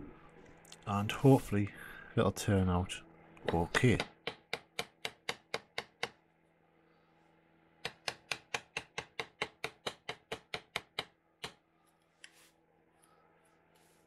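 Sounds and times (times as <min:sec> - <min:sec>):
mallet tapping chisel: 0:03.4 - 0:06.2, 0:07.8 - 0:11.6.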